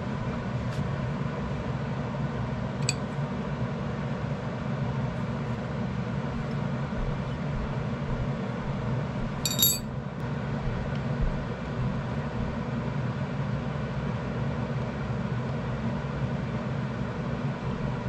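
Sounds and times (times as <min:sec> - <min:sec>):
hex key clinking on steel: 0:09.4 - 0:09.8.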